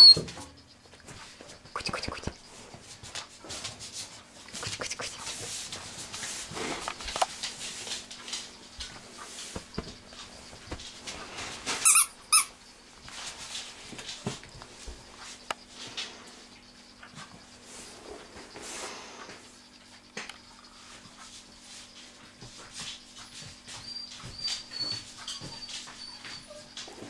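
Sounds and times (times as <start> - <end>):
puppy squeaks: 0.0 - 0.2, 23.8 - 26.7.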